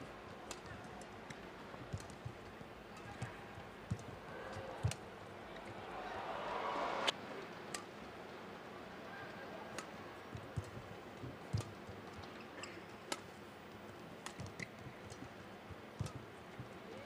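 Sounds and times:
footsteps on court: 0:00.2 - 0:06.1
racket striking shuttlecock: 0:16.0 - 0:16.3.

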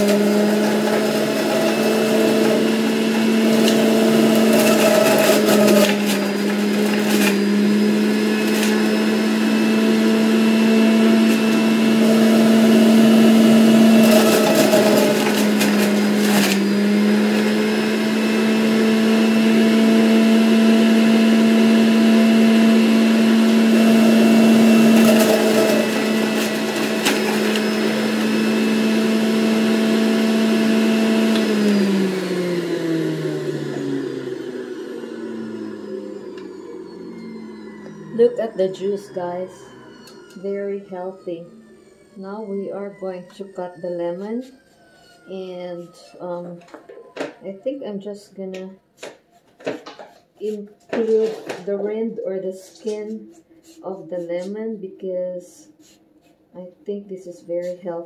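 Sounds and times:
juicer motor whine: 0:00.0 - 0:47.6.

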